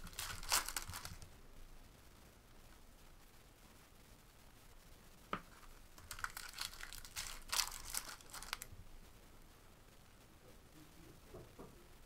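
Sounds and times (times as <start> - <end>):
foil wrapper crinkling and tearing: 0.0 - 1.3, 6.0 - 8.7.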